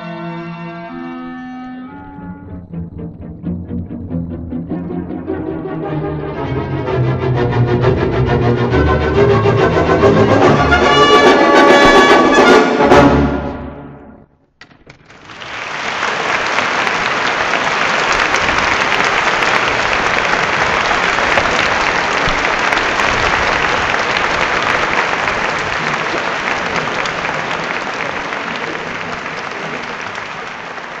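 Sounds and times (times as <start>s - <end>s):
audience applauding: 14.9s - 31.0s.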